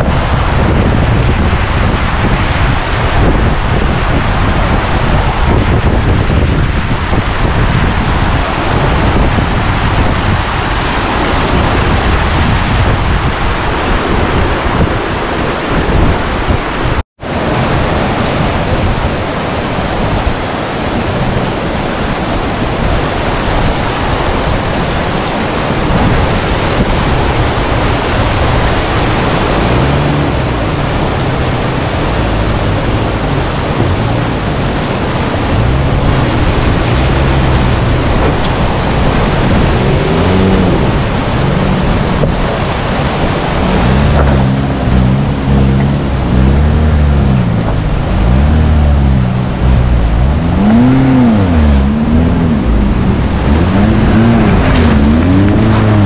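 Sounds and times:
fast river rushing: 0.0 - 56.0
wind buffeting microphone: 0.0 - 56.0.

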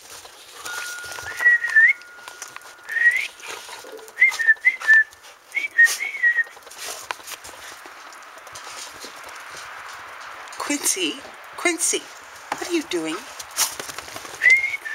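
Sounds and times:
person whistling: 0.8 - 3.4, 4.2 - 6.5, 14.4 - 14.9.

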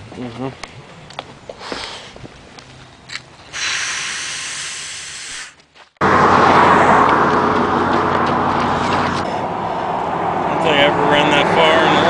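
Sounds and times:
highway traffic rush: 0.0 - 12.0
steady hiss: 3.5 - 5.6.

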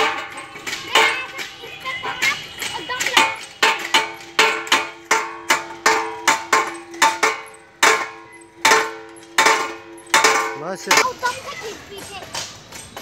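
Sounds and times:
metal gym machine clanking: 2.9 - 11.4.

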